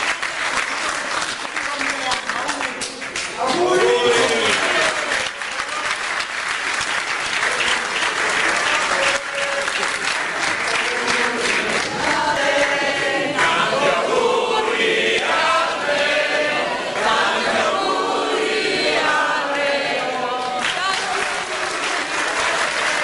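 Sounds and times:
applause: 0:00.0 - 0:13.6, 0:19.7 - 0:23.0
group singing in chorus: 0:08.4 - 0:23.0.

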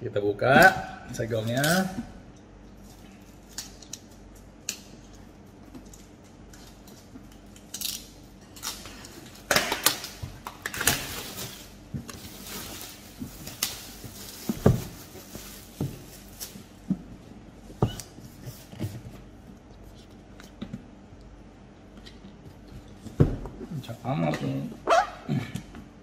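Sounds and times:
plastic wrap crackling and tearing: 0:06.5 - 0:16.8.

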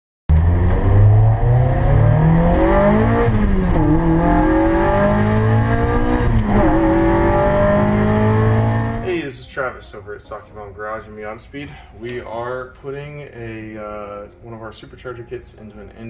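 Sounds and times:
car engine accelerating: 0:00.3 - 0:09.1.

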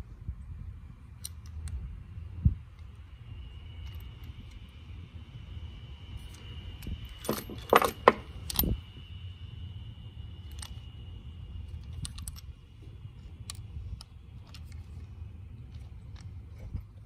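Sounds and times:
low background rumble: 0:00.0 - 0:17.0
clicks and knocks of small parts: 0:10.4 - 0:10.9, 0:11.7 - 0:12.5, 0:13.3 - 0:15.0, 0:15.6 - 0:17.0.

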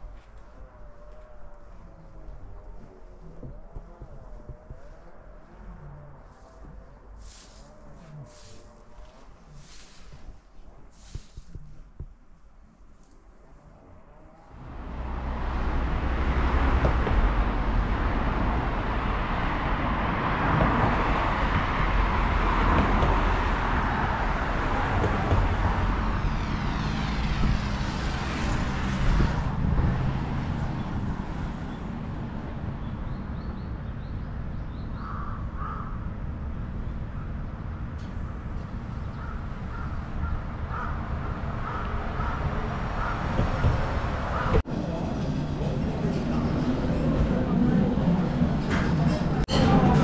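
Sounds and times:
street traffic noise: 0:00.0 - 0:50.0
vehicle passing: 0:14.4 - 0:50.0
crows cawing: 0:35.0 - 0:36.1, 0:39.1 - 0:43.7.

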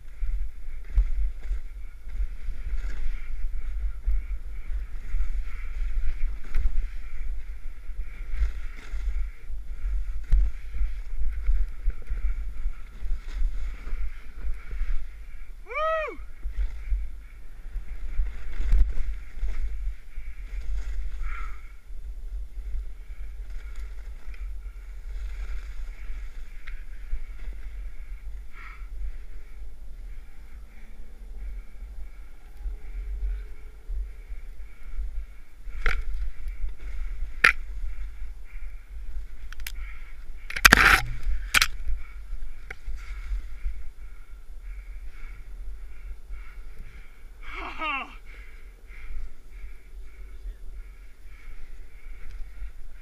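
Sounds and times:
snowboard rumbling through snow: 0:00.0 - 0:15.2, 0:23.2 - 0:26.5
wind buffeting microphone: 0:00.0 - 0:53.0.

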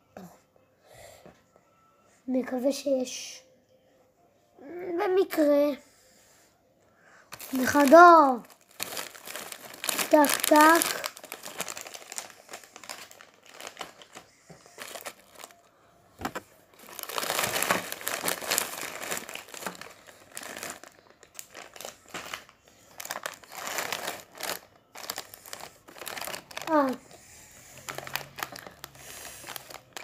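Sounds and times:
foil wrappers crinkling: 0:07.3 - 0:15.6, 0:16.2 - 0:27.0, 0:27.8 - 0:30.0.

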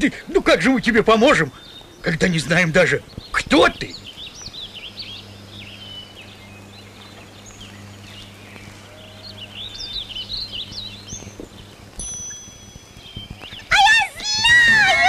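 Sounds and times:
small birds chirping: 0:00.0 - 0:15.0
steady low hum: 0:00.0 - 0:15.0.

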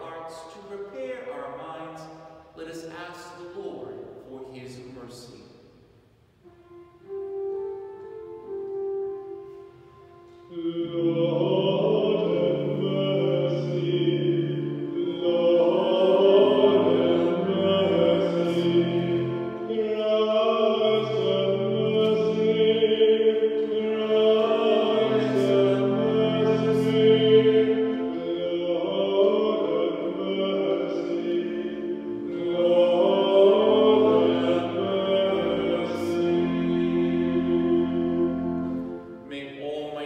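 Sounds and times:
keyboard chords: 0:06.4 - 0:39.3
person singing: 0:10.5 - 0:38.6.

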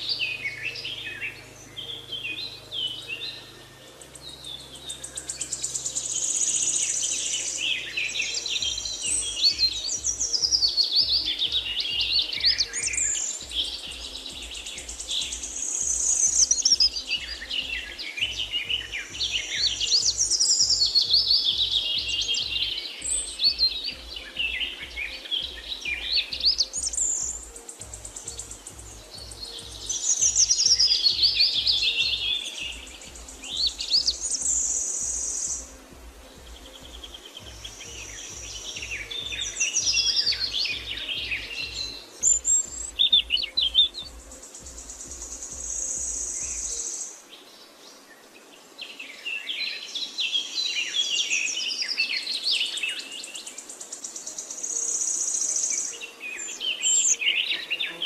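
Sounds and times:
soft low pulsing music: 0:00.0 - 0:49.2, 0:50.9 - 0:58.0
songbirds chirping and singing: 0:00.0 - 0:58.0.

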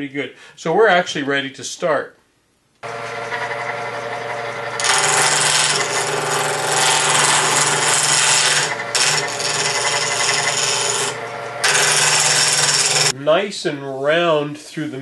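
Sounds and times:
lathe motor hum: 0:02.8 - 0:13.1
turning tool rasping wood: 0:02.8 - 0:13.2.

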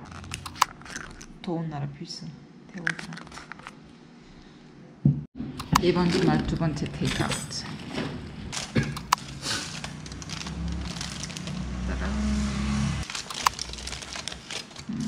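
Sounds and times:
aluminium foil crinkling: 0:05.8 - 0:07.8, 0:08.5 - 0:11.8, 0:13.0 - 0:15.0
plastic bags rustling: 0:05.8 - 0:11.9, 0:13.0 - 0:15.0
low droning hum: 0:07.7 - 0:15.0
sharp crackles: 0:13.0 - 0:14.9.

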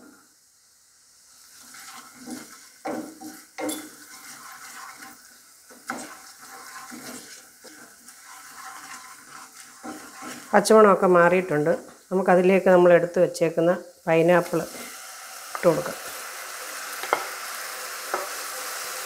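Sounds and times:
masala sizzling in oil: 0:00.0 - 0:19.0
spatula scraping pot: 0:01.5 - 0:11.1.

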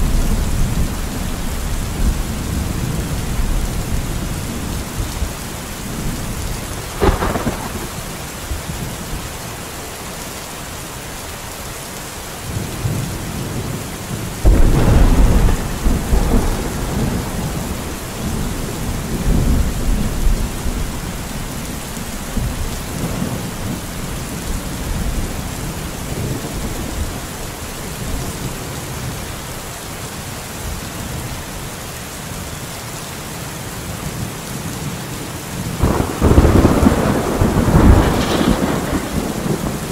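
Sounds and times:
low thunder rumble: 0:00.0 - 0:09.1, 0:14.4 - 0:28.7, 0:35.7 - 0:39.9
steady rain: 0:00.0 - 0:39.9
thunder crack: 0:07.0 - 0:08.2, 0:14.4 - 0:20.9, 0:35.8 - 0:39.9.

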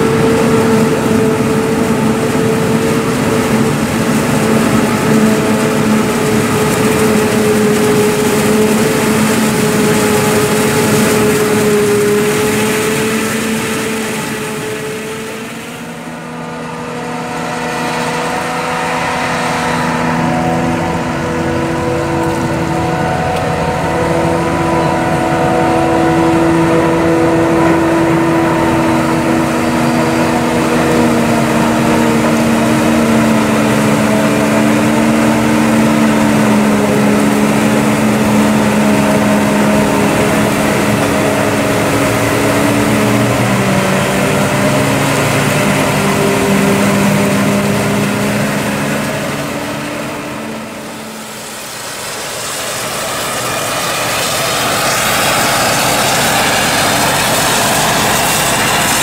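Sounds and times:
engines running steadily: 0:00.0 - 0:59.0.

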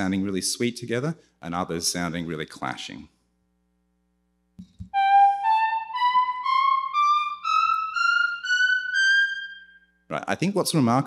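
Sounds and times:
synthesised scales climbing: 0:04.9 - 0:09.9.

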